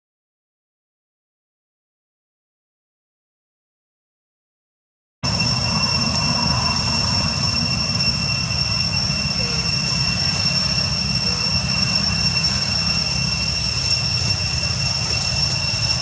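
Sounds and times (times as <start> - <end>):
high-pitched whine: 5.2 - 16.0.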